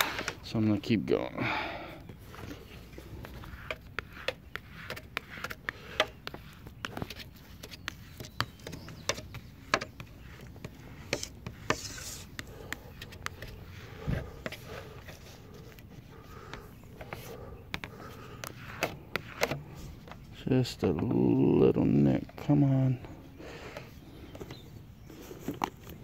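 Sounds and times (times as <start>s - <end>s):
squeegee scraping on window film: 2.2s - 20.4s.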